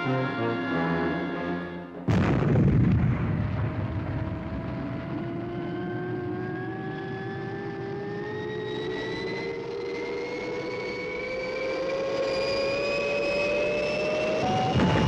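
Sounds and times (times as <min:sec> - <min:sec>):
brass chord: 0:00.0 - 0:02.1
rocket engine roaring: 0:02.1 - 0:15.0
rising whine: 0:03.8 - 0:15.0.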